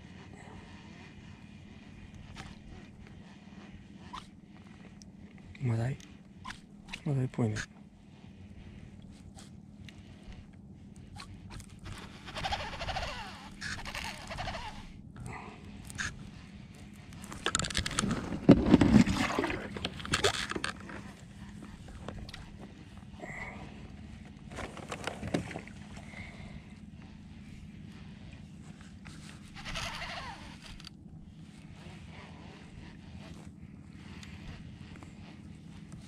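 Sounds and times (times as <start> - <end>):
rubbing clicks and knocks of gear: 15.7 - 23.1, 24.2 - 26.1, 28.3 - 32.0.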